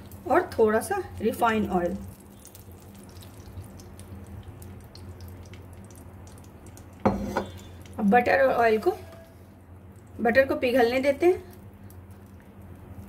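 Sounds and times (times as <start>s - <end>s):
oil crackling in a pan: 0.0s - 13.0s
steady low hum: 0.0s - 13.0s.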